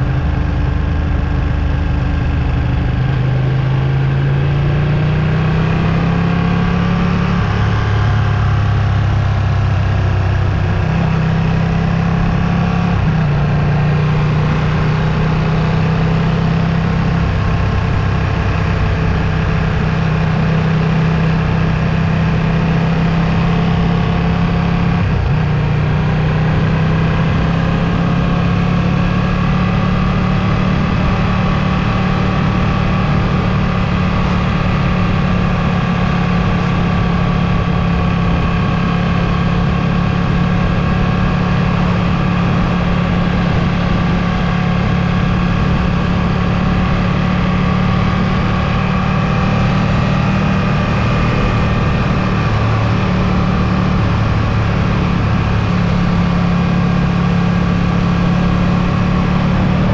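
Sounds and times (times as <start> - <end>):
motorcycle engine running: 0.0 - 59.9.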